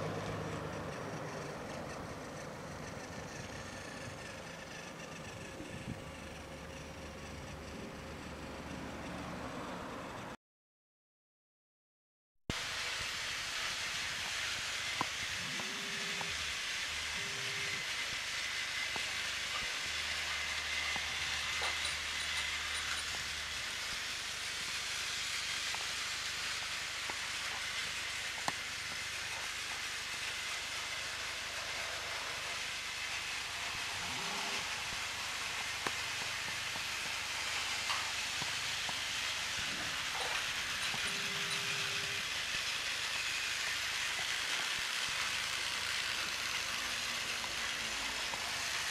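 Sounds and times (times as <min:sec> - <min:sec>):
toy train motor whirring: 0:00.0 - 0:09.8, 0:12.5 - 0:48.9.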